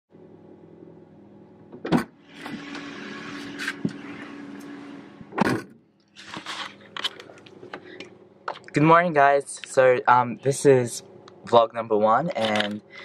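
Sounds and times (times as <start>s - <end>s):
clothes and seat rustling: 2.3s - 8.0s.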